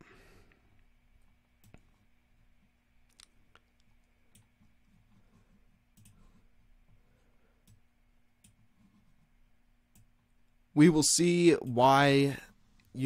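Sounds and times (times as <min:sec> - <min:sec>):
quiet steady hum: 0:00.0 - 0:13.0
computer mouse clicks: 0:03.1 - 0:07.0, 0:07.6 - 0:09.3, 0:09.9 - 0:10.3.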